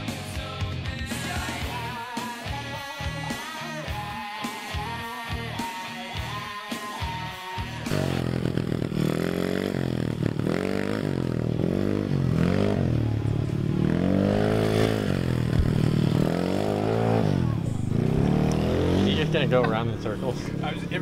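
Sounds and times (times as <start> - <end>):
vehicle engine revving: 7.6 - 21.0.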